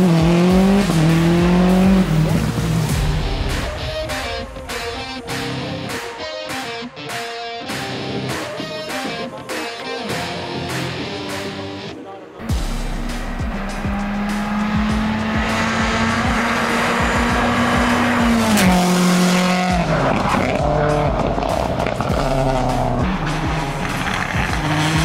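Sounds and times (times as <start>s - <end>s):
rally car engine revving high: 0.0s - 3.7s, 12.5s - 25.0s.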